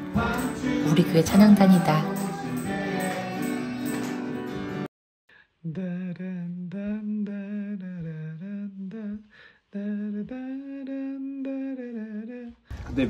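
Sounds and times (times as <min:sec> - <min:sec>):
person humming: 0:05.6 - 0:12.5.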